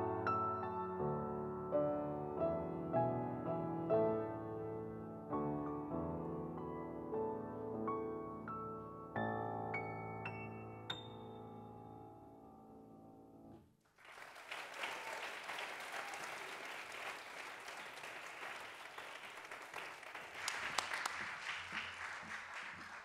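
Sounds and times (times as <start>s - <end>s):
audience applauding: 13.9s - 23.0s.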